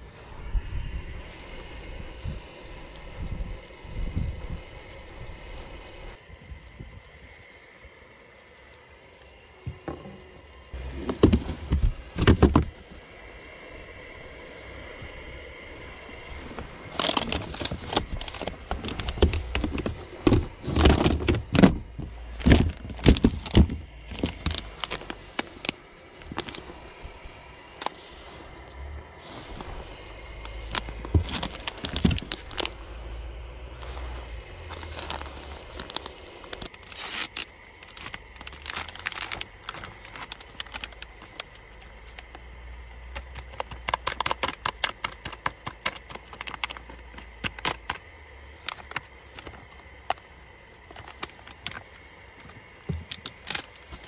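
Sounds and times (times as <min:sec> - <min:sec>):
objects being handled: 0:16.4 - 0:27.0, 0:27.7 - 0:54.0.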